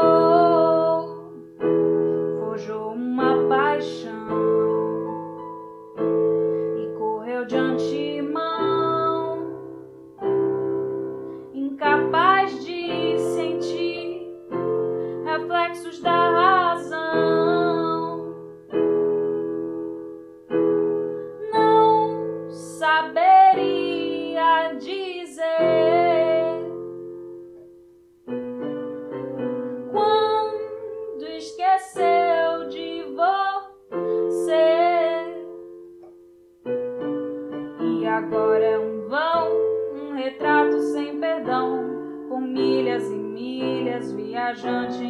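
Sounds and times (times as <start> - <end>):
woman singing: 0.0 - 5.3, 6.8 - 9.8, 11.5 - 18.4, 21.4 - 26.8, 29.9 - 35.6, 37.8 - 45.0
piano chords: 0.0 - 45.0.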